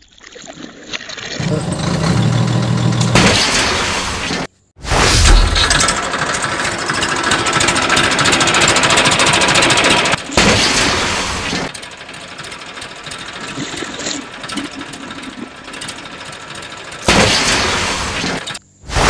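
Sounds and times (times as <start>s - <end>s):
toy tractor rattling chatter: 5.8s - 10.4s, 11.6s - 17.1s.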